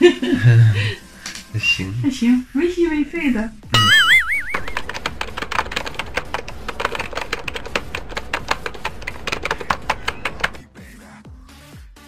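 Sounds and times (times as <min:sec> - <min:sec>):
electronic music with kick drum: 0:03.6 - 0:05.2, 0:10.6 - 0:12.0
typewriter keystroke clicks: 0:04.6 - 0:10.6.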